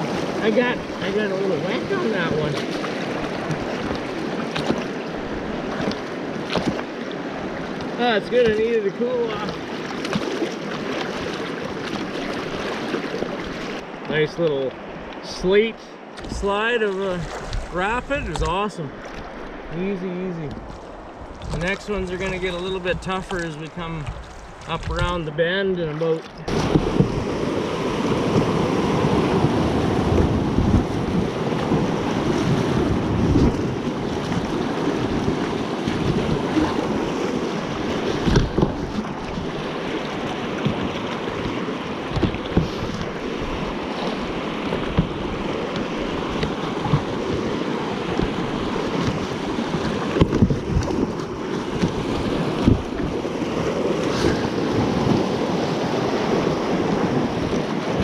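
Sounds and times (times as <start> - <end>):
thumps on raft: 5.7 - 6.9, 26.2 - 27.3, 32.7 - 53.2, 53.9 - 55.6
river rapids rushing: 26.4 - 50.2
wind on microphone: 26.4 - 58.0.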